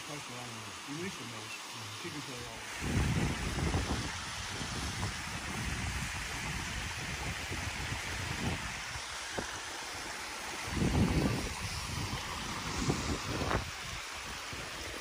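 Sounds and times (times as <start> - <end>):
waterfall rushing: 0.0 - 15.0
wind buffeting microphone: 2.7 - 9.6, 10.6 - 14.9.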